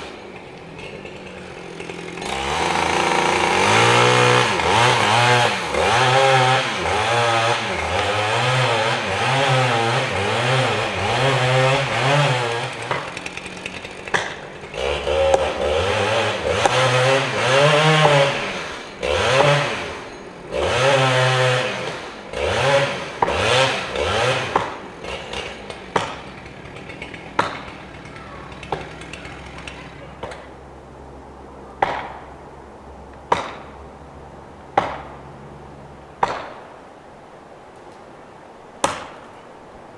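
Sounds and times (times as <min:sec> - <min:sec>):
chainsaw cutting into trunk: 0:00.0 - 0:30.5
sharp knocks: 0:33.3 - 0:33.7, 0:34.8 - 0:35.2.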